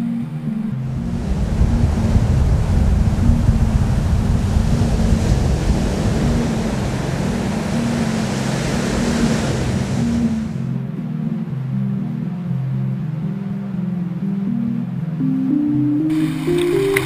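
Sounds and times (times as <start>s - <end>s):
ocean surf breaking: 0.4s - 10.8s, 16.1s - 17.0s.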